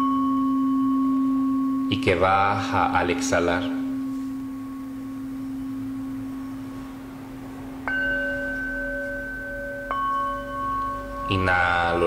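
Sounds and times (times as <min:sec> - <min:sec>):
crystal singing bowl tone: 0:00.0 - 0:12.0
metal singing bowl struck: 0:07.8 - 0:12.0.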